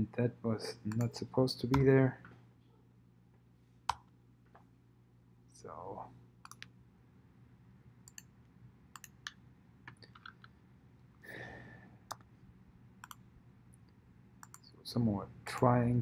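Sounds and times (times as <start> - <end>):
low steady hum: 0.0 - 16.0
computer mouse clicks: 6.4 - 6.7, 8.0 - 8.3, 8.9 - 10.6, 13.0 - 13.2, 14.4 - 14.7.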